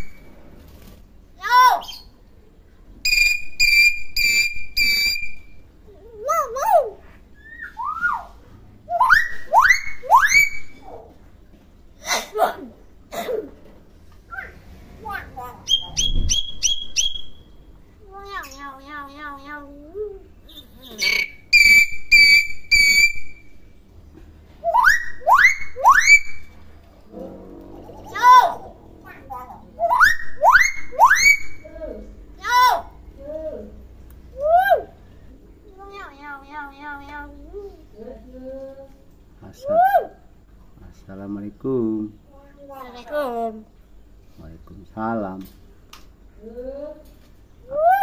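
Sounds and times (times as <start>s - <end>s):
myna bird whistling: 3.0s - 5.6s, 7.4s - 8.3s, 8.9s - 10.8s, 15.6s - 17.7s, 20.4s - 23.6s, 24.6s - 26.5s, 29.8s - 31.6s
bird whistles sweeping upward: 15.7s - 17.4s, 21.1s - 23.3s
bird calling: 27.7s - 31.7s.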